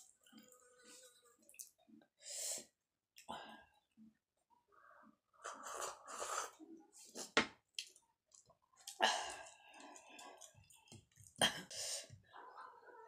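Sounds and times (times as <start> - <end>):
slurping from a bowl: 5.4 - 7.4
chewing with clicks and smacks: 7.6 - 11.5.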